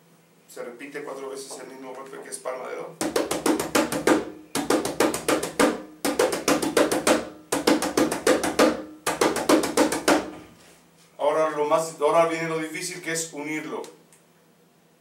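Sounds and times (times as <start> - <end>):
conga strokes: 3.0 - 11.0.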